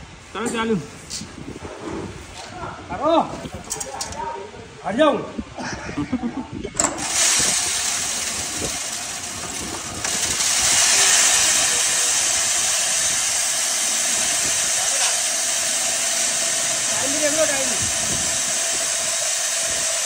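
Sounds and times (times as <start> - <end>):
feed grinder running: 6.8 - 20.0.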